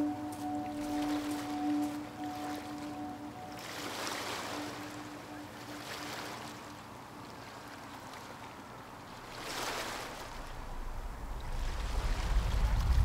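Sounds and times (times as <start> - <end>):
small waves lapping on pebbles: 3.5 - 10.8
low rumble: 10.5 - 13.0.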